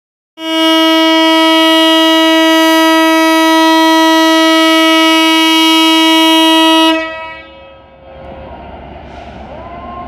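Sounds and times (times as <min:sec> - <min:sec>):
locomotive air horn: 0:00.4 - 0:08.0.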